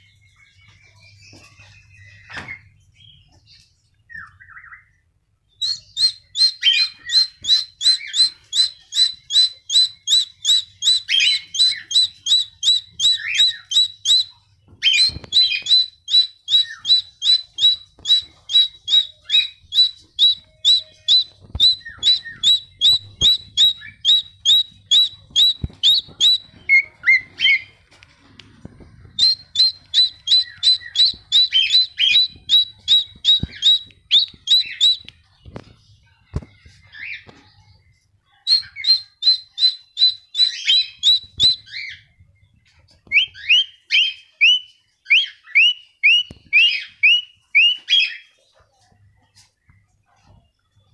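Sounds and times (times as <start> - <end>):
cockatiel chirping: 5.5 - 27.8, 28.7 - 35.3, 38.3 - 48.3.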